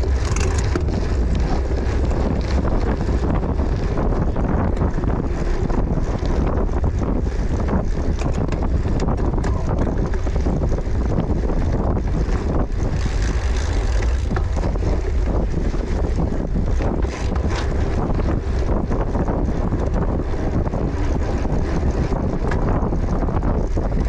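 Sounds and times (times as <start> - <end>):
low bike rumble: 0.0 - 24.0
small rattles and clicks: 0.0 - 24.0
wind buffeting microphone: 0.0 - 24.0.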